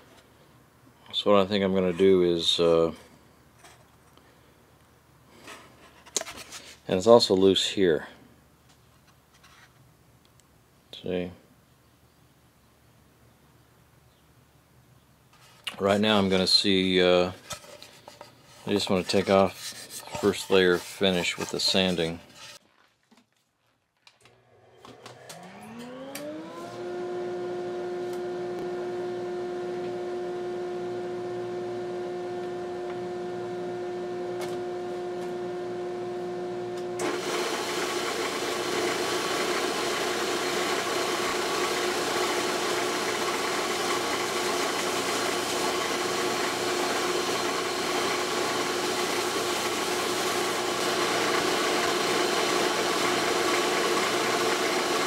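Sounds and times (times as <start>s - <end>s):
belt sander rushing noise: 15.9s - 22.6s, 24.6s - 55.0s
dust collector whine and hum: 24.5s - 55.0s.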